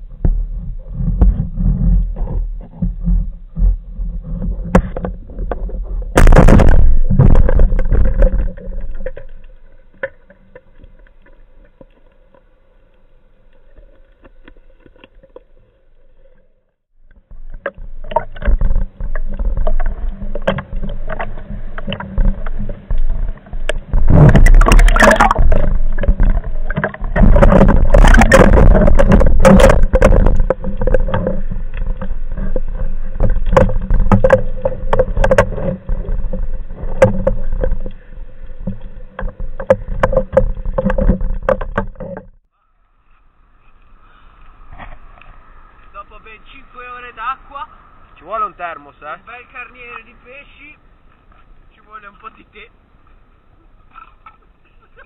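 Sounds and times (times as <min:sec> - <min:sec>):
rushing water underwater: 0:00.0 - 0:48.2
knocks and bumps: 0:00.2 - 0:09.2, 0:23.8 - 0:37.8.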